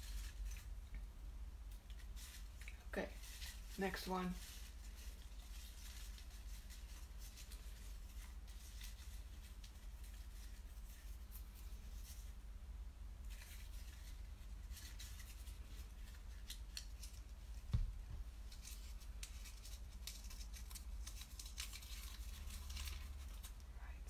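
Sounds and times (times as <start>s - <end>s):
soft thump: 17.7s - 18.3s.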